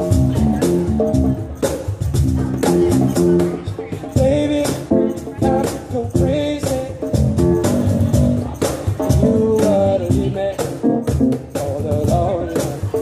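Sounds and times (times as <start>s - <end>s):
electric keyboard chords: 0.0s - 13.0s
steady beat: 0.0s - 13.0s
man singing: 3.6s - 8.4s, 9.0s - 13.0s.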